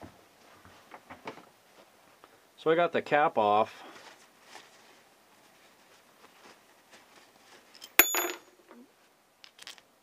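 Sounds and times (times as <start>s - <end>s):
paper towel rustling: 3.7s - 7.7s
metal part clinking: 7.8s - 8.5s.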